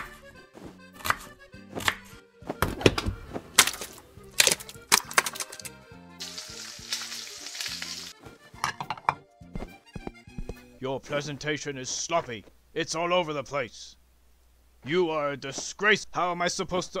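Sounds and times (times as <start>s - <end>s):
knife chopping on a board: 0.0s - 3.9s
background music: 0.0s - 11.8s
food sizzling in a frying pan: 6.2s - 8.2s.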